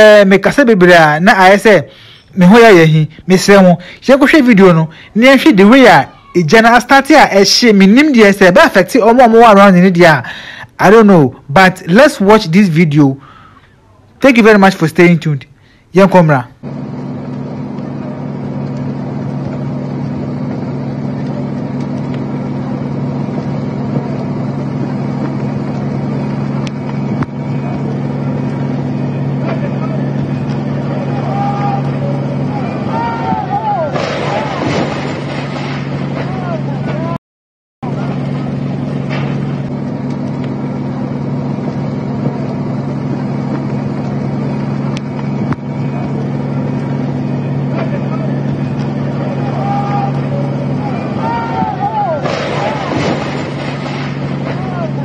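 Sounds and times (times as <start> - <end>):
engine drone: 0.0 - 14.6, 15.5 - 37.2, 37.8 - 55.0.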